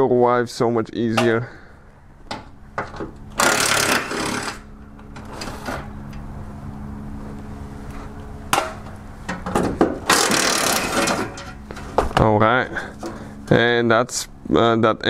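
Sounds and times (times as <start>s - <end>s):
impact wrench hammering: 2.3s - 4.7s, 8.5s - 11.8s.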